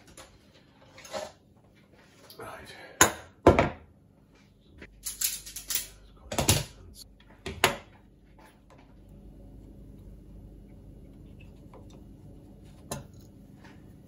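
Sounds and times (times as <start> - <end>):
metal tools clattering on wood: 5.0 - 6.0.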